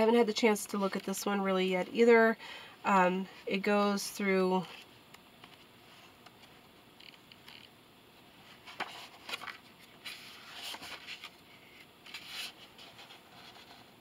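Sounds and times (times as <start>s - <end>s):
book pages rustling: 8.4s - 14.0s.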